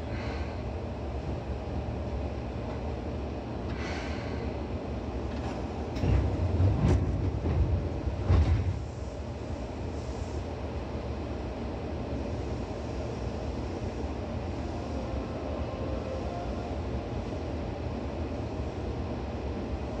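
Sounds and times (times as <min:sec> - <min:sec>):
train wheels rumbling: 0:01.1 - 0:11.3.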